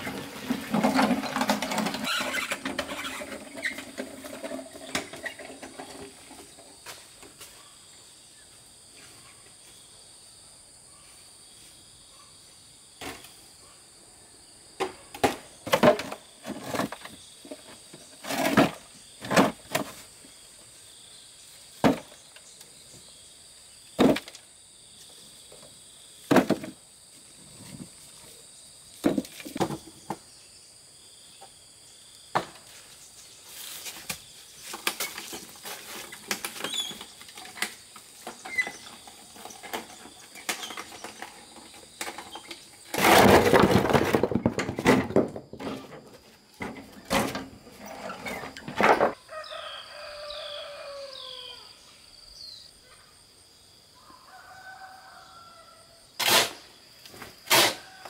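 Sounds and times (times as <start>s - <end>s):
insects buzzing: 0.0s - 58.0s.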